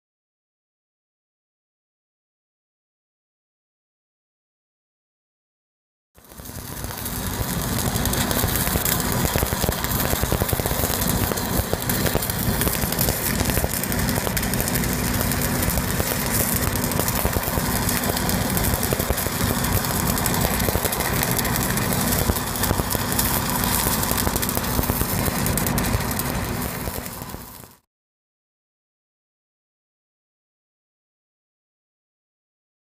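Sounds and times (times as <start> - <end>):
welding machine engine drone: 6.2 - 27.8
welding arc crackling and sizzling: 6.2 - 27.9.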